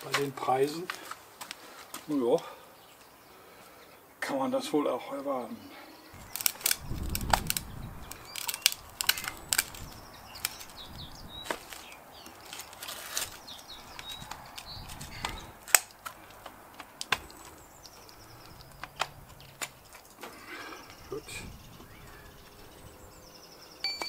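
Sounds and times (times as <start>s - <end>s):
handling clicks and knocks: 6.2s - 10.8s, 11.4s - 20.4s.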